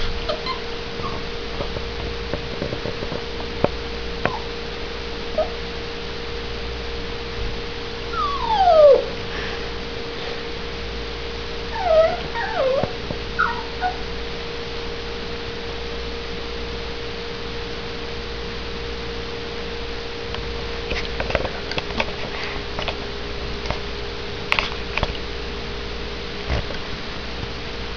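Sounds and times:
small dog whining: 0.0 - 1.3, 4.2 - 4.6, 5.3 - 5.6, 8.1 - 9.2, 11.7 - 14.1
steady hum: 0.0 - 27.9.

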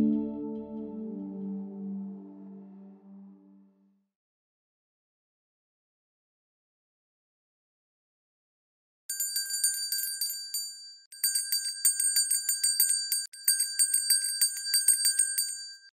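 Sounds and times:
small bell ringing rapidly: 9.1 - 16.0.

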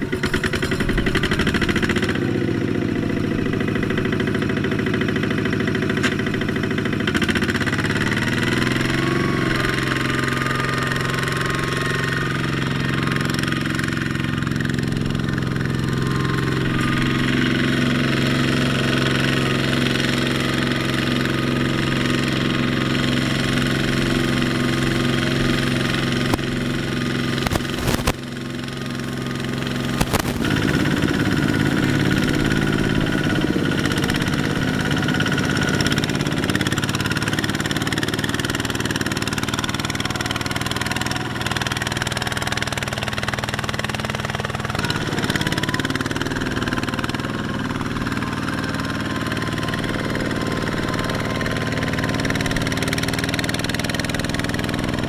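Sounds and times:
diesel engine running: 0.0 - 55.0
sharp clicks: 27.4 - 28.2.

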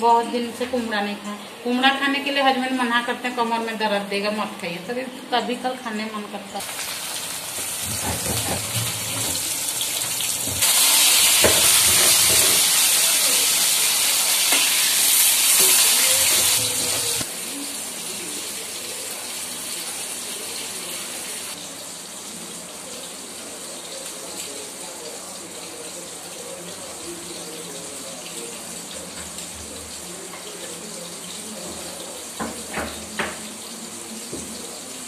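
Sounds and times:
fish sizzling in hot oil: 6.6 - 35.0
spatula knocking and scraping: 7.8 - 9.5.

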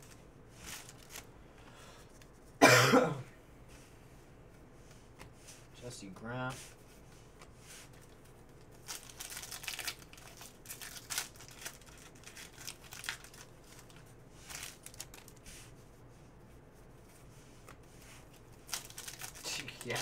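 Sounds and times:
foil wrapper tearing and crinkling: 8.7 - 15.4, 18.6 - 20.0.

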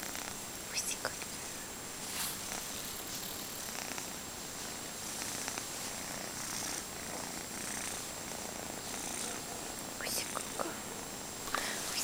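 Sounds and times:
kitten purring: 0.0 - 1.3, 2.0 - 10.8.

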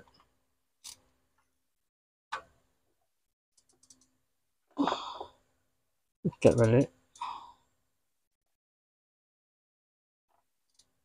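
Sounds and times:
person sighing: 4.8 - 5.4, 7.2 - 7.6.

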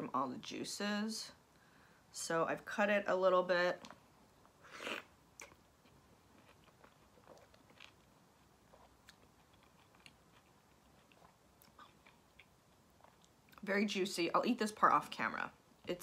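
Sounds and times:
wet chewing: 5.4 - 13.6.

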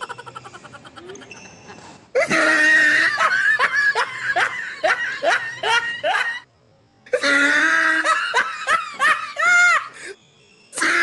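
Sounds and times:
person laughing: 0.0 - 1.4.

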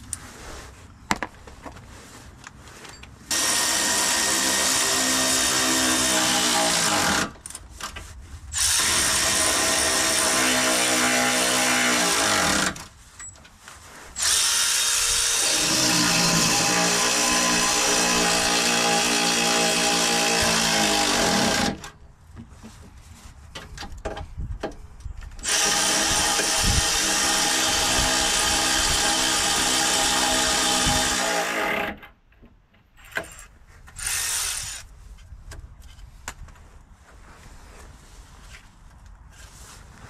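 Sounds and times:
cordless power tool running: 3.3 - 7.3, 25.4 - 32.0.

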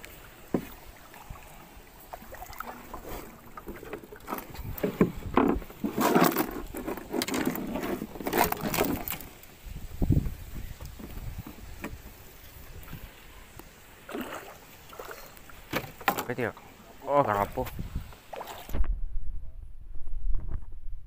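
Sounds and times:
water sloshing: 0.0 - 9.6, 13.9 - 16.6, 17.2 - 18.8.

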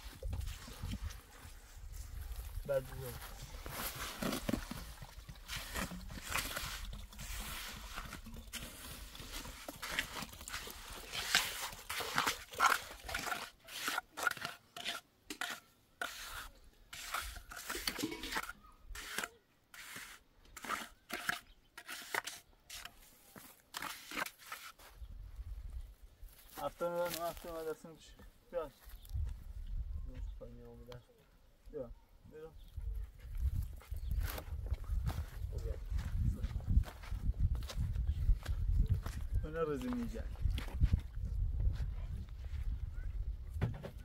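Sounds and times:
tool scraping wet cement: 3.9 - 24.8.

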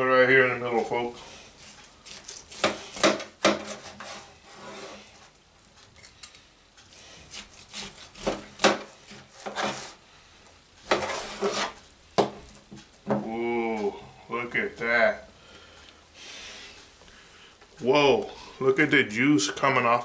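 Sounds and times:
knife sawing through bone-in roast: 1.2 - 5.2, 6.9 - 10.0, 10.9 - 11.8.

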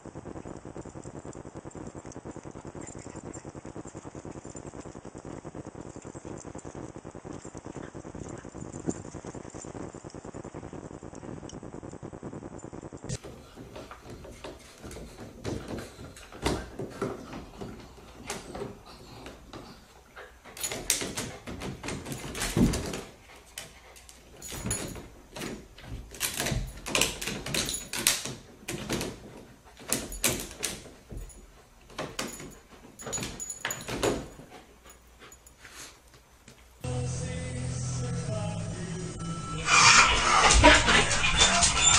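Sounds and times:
dog scrambling over rattling gate: 13.7 - 34.6.

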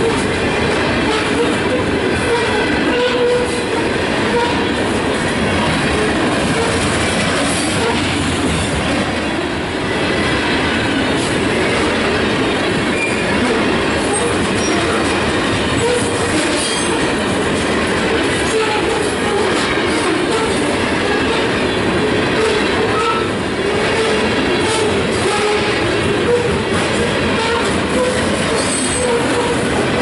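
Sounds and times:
train wheels rumbling on rails: 0.0 - 30.0
wheel squeal: 12.9 - 13.3, 27.4 - 29.5.

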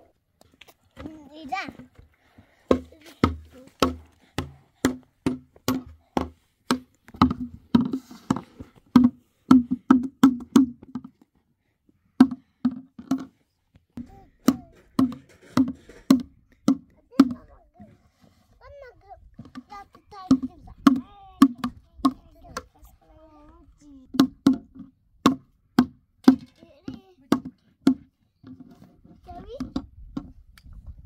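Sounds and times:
hands drumming on plastic basin: 1.8 - 11.1, 14.0 - 18.0, 19.4 - 22.7, 24.1 - 28.8.

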